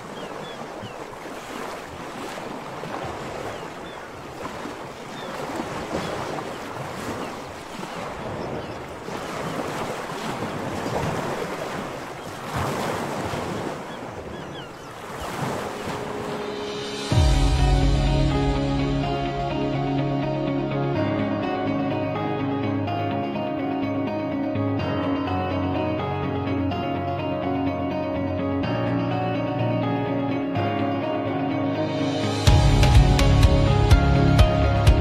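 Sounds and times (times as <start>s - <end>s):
surf washing on shore: 0.0s - 19.4s
wind: 0.0s - 35.0s.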